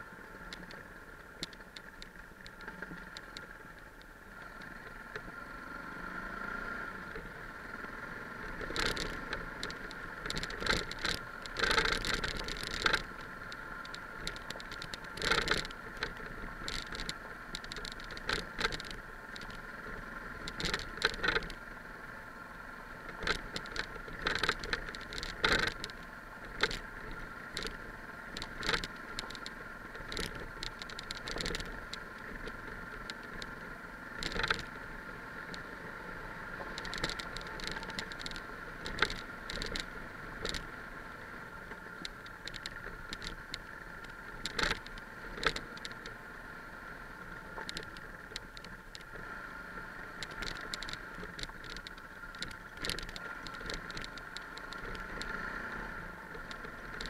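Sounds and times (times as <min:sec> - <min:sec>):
motorcycle engine drone: 0:00.0 - 0:57.0
bike knocking and rattling over stones: 0:08.4 - 0:21.7, 0:22.9 - 0:46.3, 0:47.1 - 0:57.0.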